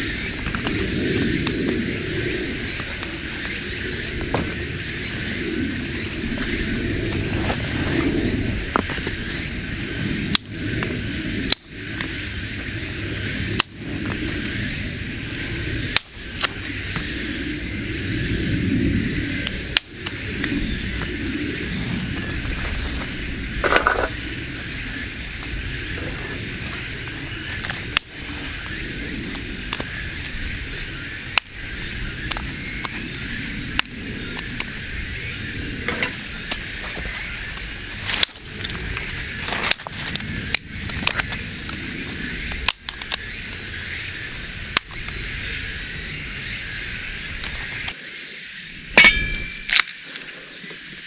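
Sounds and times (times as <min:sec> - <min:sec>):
dry wooden sticks snapping: 0:10.3 - 0:12.2, 0:13.5 - 0:14.4, 0:15.2 - 0:17.0, 0:19.4 - 0:21.1, 0:26.8 - 0:30.4, 0:31.3 - 0:31.6, 0:32.2 - 0:33.0, 0:37.5 - 0:43.6, 0:44.7 - 0:45.2, 0:48.9 - 0:50.3
small twigs snapping: 0:15.2 - 0:17.0, 0:26.7 - 0:30.4, 0:36.0 - 0:43.6, 0:44.7 - 0:45.2, 0:49.0 - 0:50.3.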